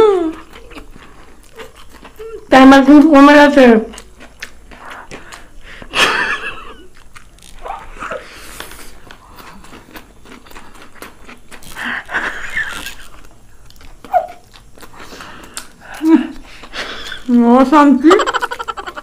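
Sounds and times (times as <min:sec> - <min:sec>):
wet smacking mouth sounds: 0:00.3 - 0:02.5, 0:04.0 - 0:05.9
people slurping noodles: 0:07.5 - 0:10.0.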